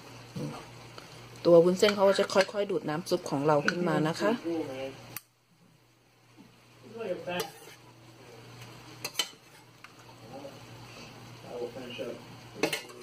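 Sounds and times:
utensils scraping metal frying pan: 0:07.2 - 0:07.9, 0:09.0 - 0:09.7.

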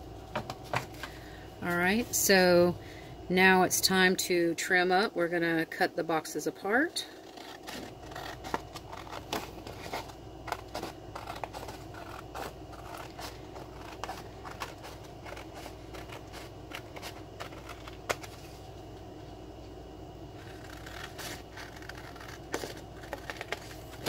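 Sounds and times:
scissors snipping cardstock: 0:07.2 - 0:18.3, 0:20.4 - 0:23.7.

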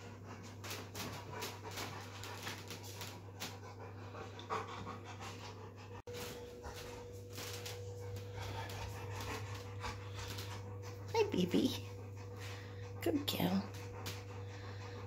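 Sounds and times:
dog panting hard: 0:00.0 - 0:15.0.

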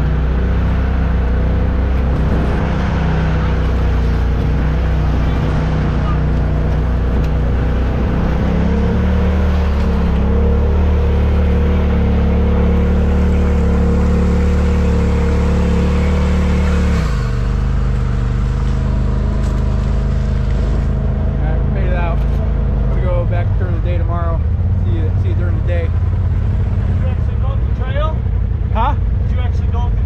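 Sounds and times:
off-road vehicle engine running: 0:00.0 - 0:30.0.

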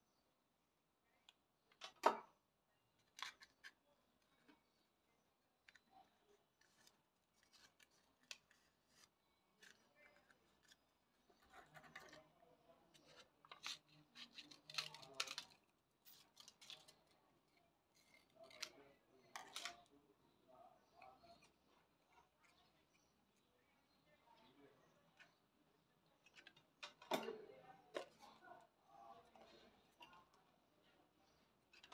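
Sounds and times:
scissors snipping paper: 0:06.6 - 0:10.8, 0:13.1 - 0:17.0
light clicks of paper handling: 0:06.6 - 0:12.2.

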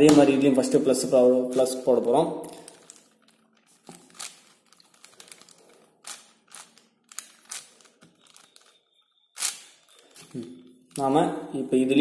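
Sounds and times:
puzzle cube clicking: 0:03.8 - 0:08.8, 0:09.4 - 0:11.0.

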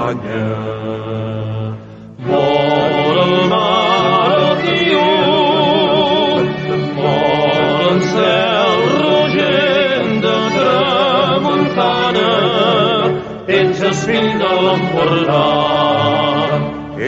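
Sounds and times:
choral singing with vibrato: 0:00.0 - 0:17.0
instrumental accompaniment: 0:00.0 - 0:17.0.

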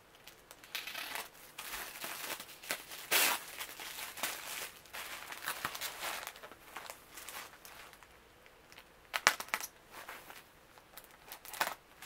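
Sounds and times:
tissue paper rustling: 0:00.9 - 0:08.0.

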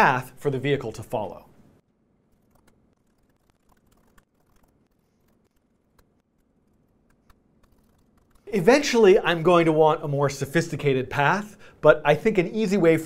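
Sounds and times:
typing on laptop keyboard: 0:02.3 - 0:08.5.

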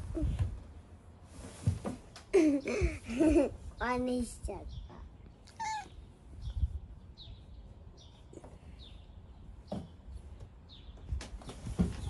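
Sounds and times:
small bird chirping: 0:04.5 - 0:11.6.

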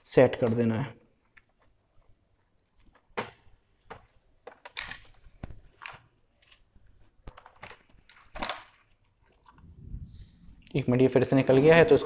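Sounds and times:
clicks and knocks of laptop parts: 0:02.8 - 0:06.6, 0:07.2 - 0:09.0.

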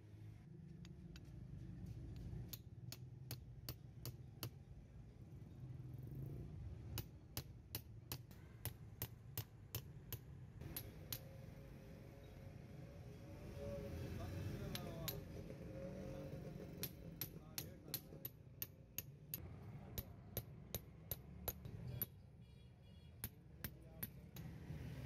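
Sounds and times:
hammer tapping a chisel: 0:02.1 - 0:04.7, 0:07.0 - 0:11.3, 0:14.6 - 0:15.5, 0:16.5 - 0:22.2, 0:23.2 - 0:24.5.

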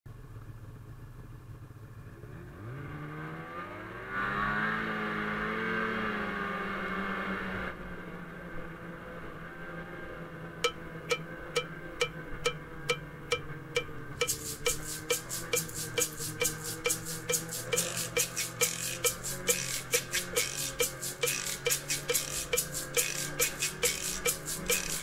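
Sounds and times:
music with clicking beat: 0:10.6 - 0:25.0.

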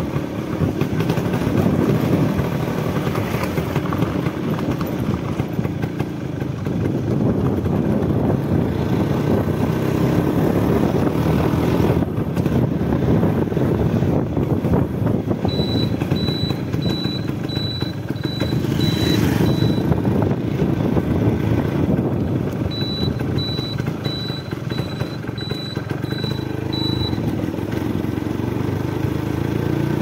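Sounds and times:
two-stroke motorcycle engine: 0:00.0 - 0:30.0
short high beep: 0:15.4 - 0:20.0, 0:22.7 - 0:27.3.

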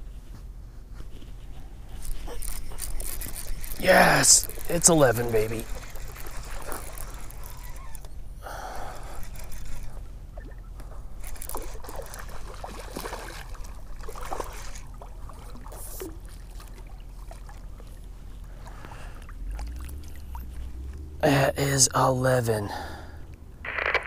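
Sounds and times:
fishing reel clicks and scrapes: 0:01.9 - 0:10.1, 0:11.2 - 0:12.3
fish splashing at water surface: 0:11.2 - 0:17.6.

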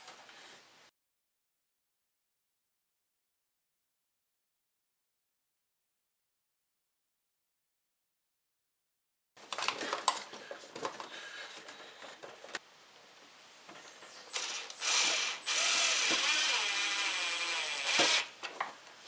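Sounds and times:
cordless drill whirring: 0:14.3 - 0:18.4.

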